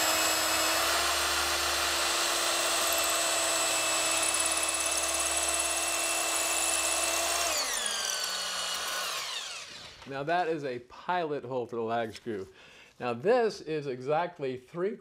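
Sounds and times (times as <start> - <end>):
electric drill boring into wood: 0.0 - 10.1.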